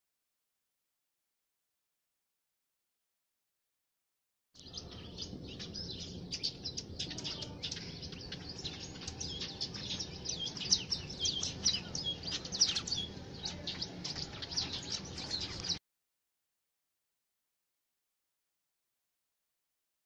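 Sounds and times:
birds chattering and chirping: 4.6s - 15.8s.

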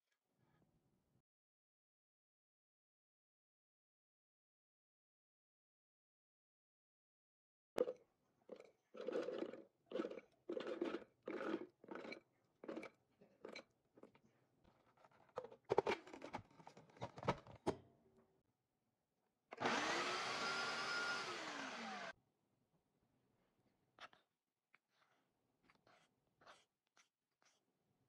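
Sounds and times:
food processor motor chopping: 19.6s - 22.2s.

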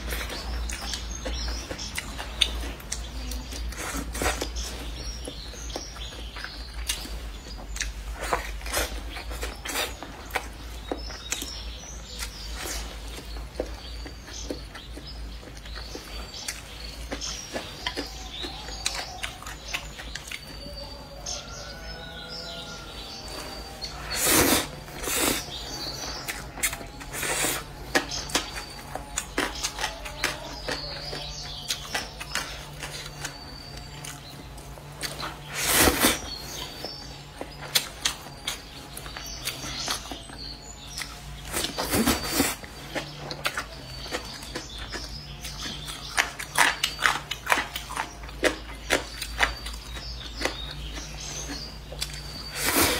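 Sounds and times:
chewing: 0.0s - 52.9s
noodles slurped: 24.0s - 25.6s.

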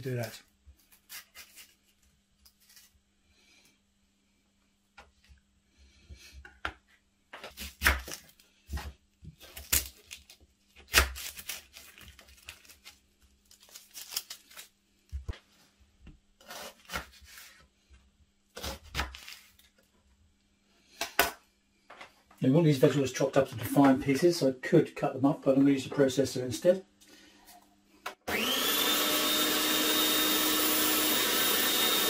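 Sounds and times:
onion skin tearing: 0.8s - 2.9s, 7.4s - 8.5s, 9.4s - 14.8s, 18.6s - 19.7s.

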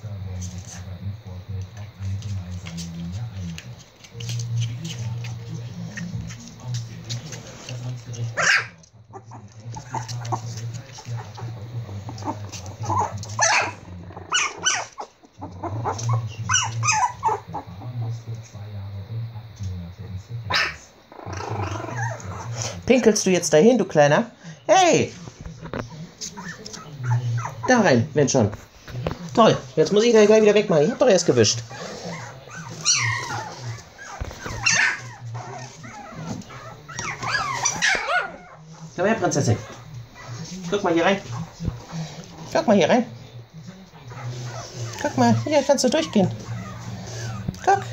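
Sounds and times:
puppies yipping: 8.3s - 18.0s, 20.5s - 22.7s, 26.2s - 27.9s, 29.9s - 42.6s, 43.8s - 47.9s.

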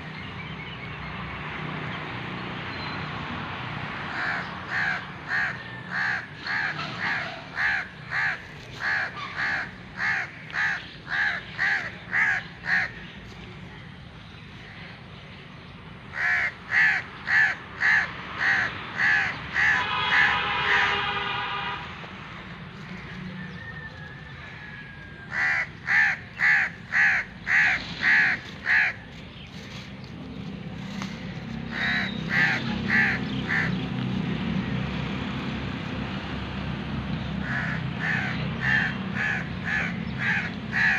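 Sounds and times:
crows cawing: 4.1s - 13.1s, 16.1s - 20.9s, 24.4s - 29.1s, 31.7s - 33.8s, 37.4s - 40.9s.

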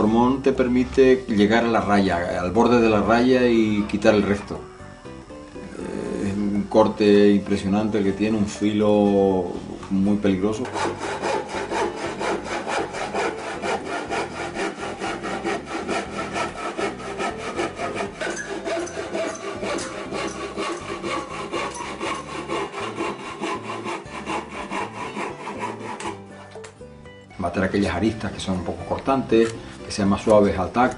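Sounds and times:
hand saw cutting wood: 10.6s - 26.6s.

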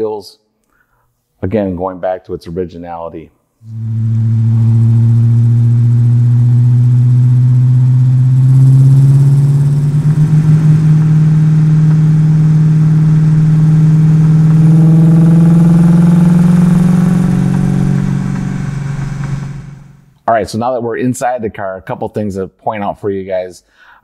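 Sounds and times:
car engine revving under load: 3.6s - 20.2s.

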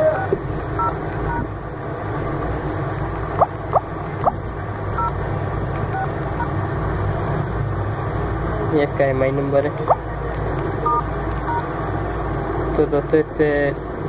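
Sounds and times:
two-tone keypad beeps: 0.0s - 1.4s.

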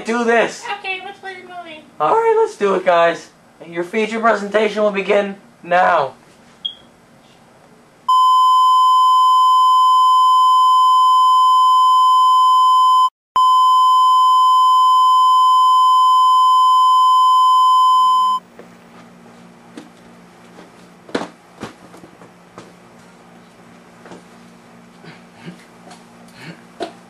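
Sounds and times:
test-tone beep: 8.1s - 18.4s.

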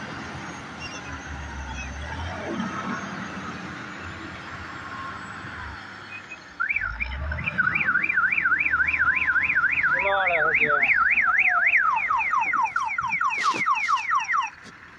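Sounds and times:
electronic siren warbling: 6.6s - 14.6s.

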